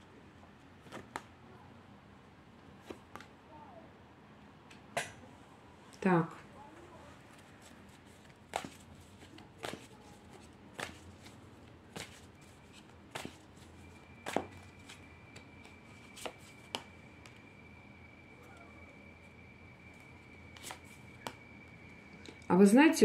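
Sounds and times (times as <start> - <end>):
cards snapping and tapping: 0.8 - 1.3, 8.2 - 11.3, 13.1 - 13.4, 14.3 - 14.6, 20.5 - 21.4.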